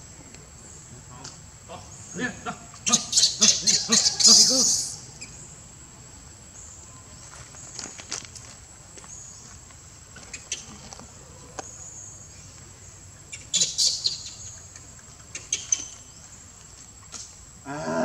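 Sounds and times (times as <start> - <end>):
animal chirps and squeaks: 2.9 - 5.0, 13.4 - 14.6, 15.3 - 16.1.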